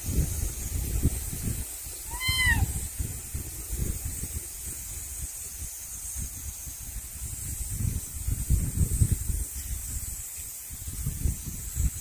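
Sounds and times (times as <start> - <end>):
kitten mewing: 2.1 - 2.8.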